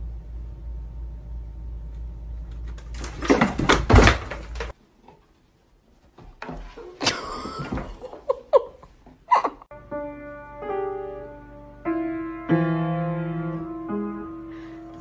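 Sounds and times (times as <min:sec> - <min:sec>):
cardboard boxes knocking and rustling: 0:03.0 - 0:04.7.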